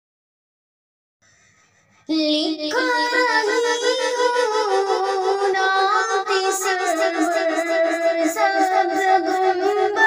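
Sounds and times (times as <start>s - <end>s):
woman singing long wavering notes: 2.1s - 10.0s.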